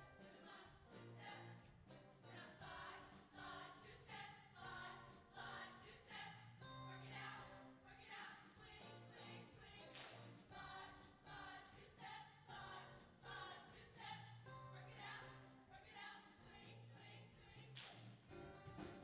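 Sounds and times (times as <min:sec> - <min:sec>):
women's choir singing: 0:00.0 - 0:01.7, 0:02.3 - 0:17.8
instrumental accompaniment: 0:18.3 - 0:19.0.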